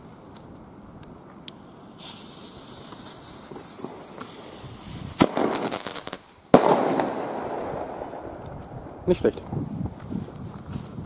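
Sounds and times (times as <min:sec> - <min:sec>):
firework crackles: 0:01.2 - 0:09.6
firework shell bursting: 0:01.5 - 0:08.8
fuse hissing: 0:01.9 - 0:05.1
firework bang: 0:02.0 - 0:09.0.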